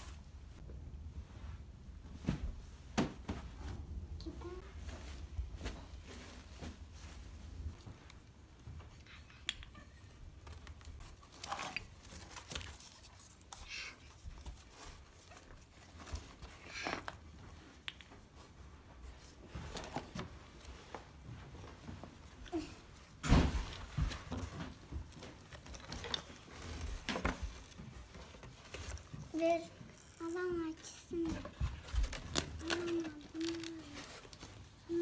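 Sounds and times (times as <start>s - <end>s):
small pieces rustling and knocking: 23.6s - 35.0s.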